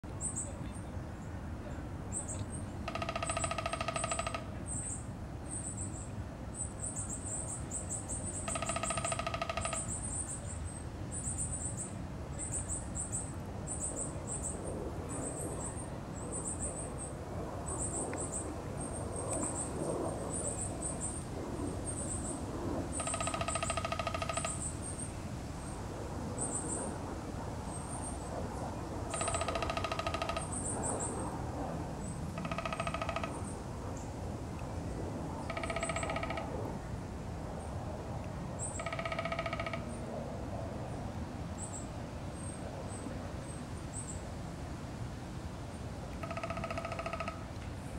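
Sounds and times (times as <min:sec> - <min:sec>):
woodpecker drumming on tree: 0:02.8 - 0:04.6, 0:08.4 - 0:10.2, 0:22.9 - 0:24.8, 0:29.1 - 0:30.8, 0:32.4 - 0:33.5, 0:35.4 - 0:36.4, 0:38.8 - 0:39.9, 0:46.2 - 0:47.5.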